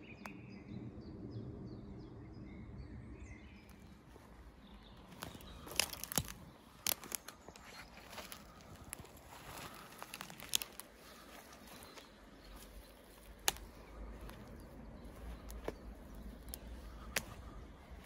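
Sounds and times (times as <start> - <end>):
low rumble: 0.0 - 18.0
footsteps rustling through dry grass: 3.9 - 18.0
twigs snapping: 5.0 - 18.0.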